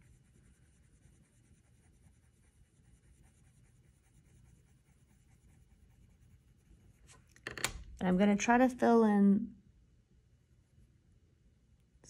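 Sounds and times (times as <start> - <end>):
colored pencil scratching on paper: 0.0 - 7.3.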